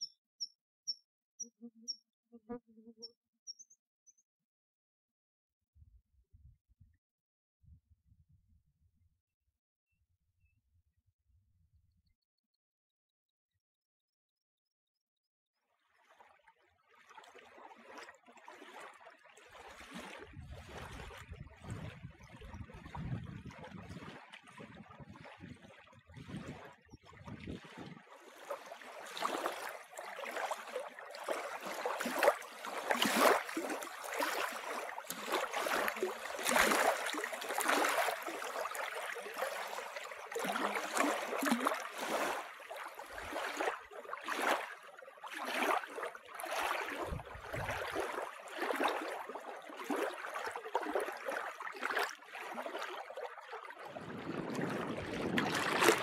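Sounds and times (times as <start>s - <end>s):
waves lapping on shore: 17.0s - 56.0s.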